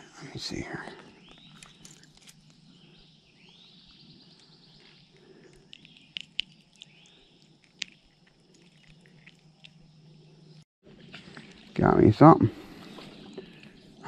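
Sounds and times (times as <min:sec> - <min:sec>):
birds calling: 0:00.0 - 0:14.0.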